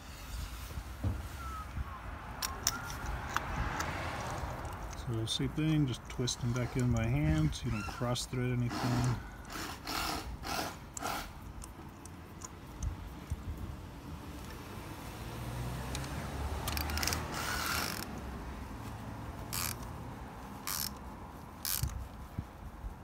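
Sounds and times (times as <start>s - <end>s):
ratchet wrench clicking: 2.4s - 13.5s, 15.9s - 18.2s, 19.4s - 20.0s, 20.6s - 22.0s
sharp metal clicks: 2.4s - 13.5s, 15.9s - 18.3s, 19.4s - 20.0s, 20.6s - 22.0s.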